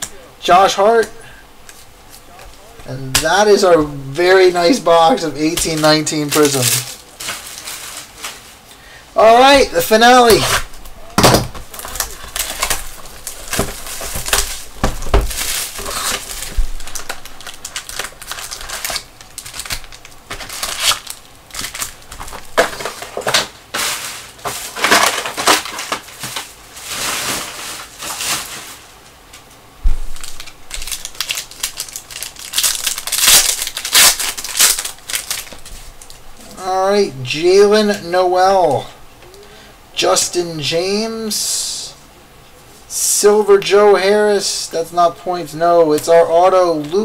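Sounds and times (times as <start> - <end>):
packaging crinkling: 1.6 - 36.6
foil wrapper tearing: 4.6 - 8.6, 9.3 - 29.0, 30.1 - 36.2.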